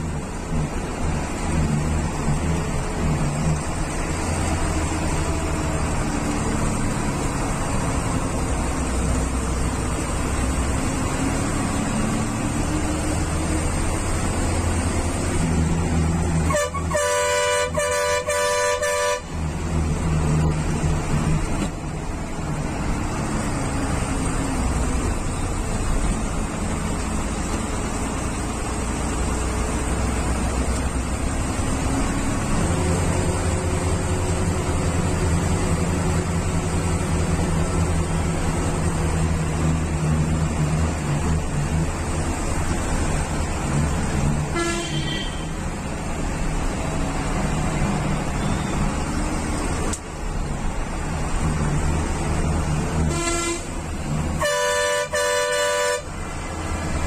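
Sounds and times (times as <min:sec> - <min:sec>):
bus engine running: 0:00.0 - 0:57.0
bus horn blasts: 0:16.4 - 0:19.5, 0:44.5 - 0:45.7, 0:53.0 - 0:56.2.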